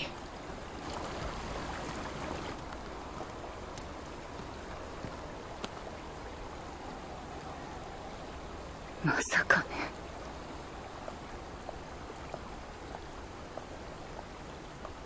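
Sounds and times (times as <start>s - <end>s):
flowing river water: 0.0s - 15.0s
faint ticks: 2.5s - 5.9s, 9.9s - 15.0s.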